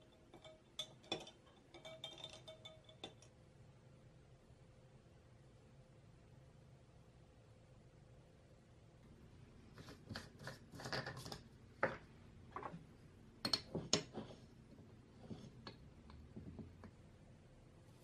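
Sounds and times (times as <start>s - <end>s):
jar and cap tapping: 0.0s - 3.3s, 13.4s - 14.3s.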